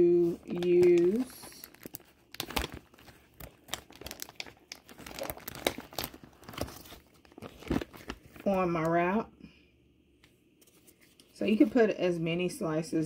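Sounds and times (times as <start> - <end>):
plastic packaging crinkling: 0.1 - 8.8.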